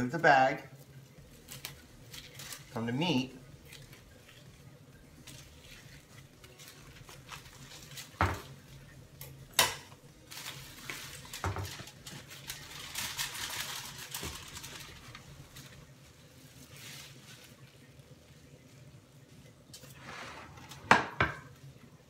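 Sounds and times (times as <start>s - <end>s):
plastic bag crinkling: 0.9s - 9.4s, 10.0s - 18.6s.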